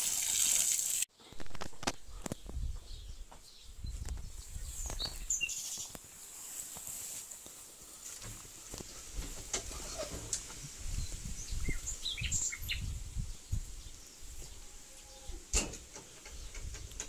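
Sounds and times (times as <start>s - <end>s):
low rumble on microphone: 1.4s - 5.2s
bird chirps: 2.0s - 6.0s, 11.0s - 13.5s.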